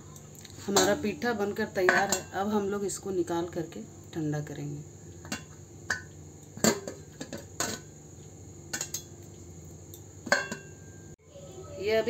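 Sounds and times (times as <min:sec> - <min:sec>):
metal tongs clinking on steamer: 0:01.8 - 0:02.5, 0:08.7 - 0:09.2, 0:09.9 - 0:10.9.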